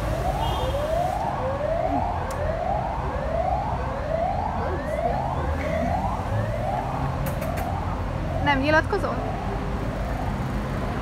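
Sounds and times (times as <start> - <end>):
siren rising and falling: 0.0 - 10.3.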